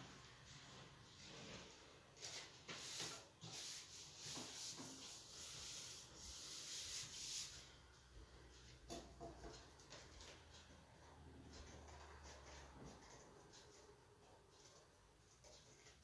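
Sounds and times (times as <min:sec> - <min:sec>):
hands rubbing paper: 0:02.2 - 0:07.7.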